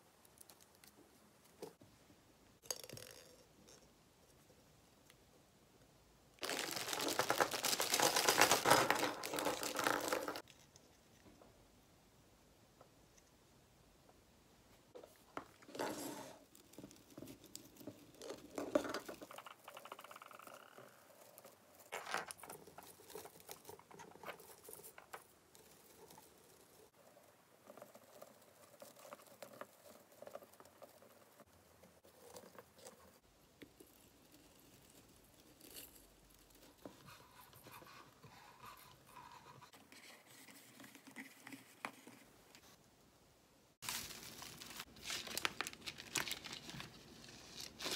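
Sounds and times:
rustling of artificial branches: 0:06.4 - 0:10.7, 0:43.7 - 0:47.9.

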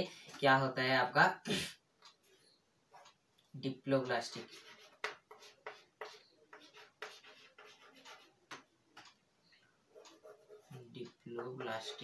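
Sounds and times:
chalk tapping and scratching on chalkboard: 0:04.2 - 0:09.2, 0:09.9 - 0:12.0.

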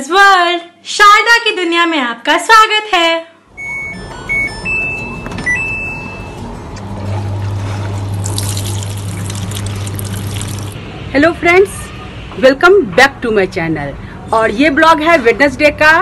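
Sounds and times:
short electronic beeps: 0:03.5 - 0:06.5
water pouring into washing machine: 0:07.4 - 0:10.8.

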